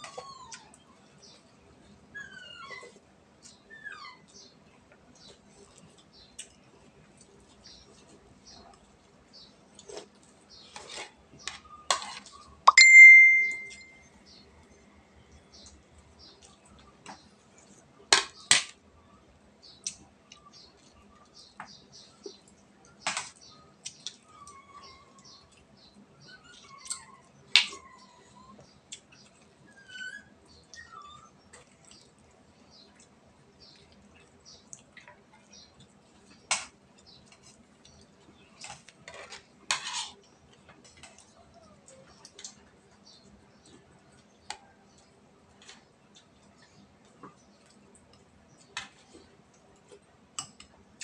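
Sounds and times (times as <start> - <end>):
spoons clinking against plates: 11.9 - 14.0
chewing and lip-smacking: 31.5 - 36.4.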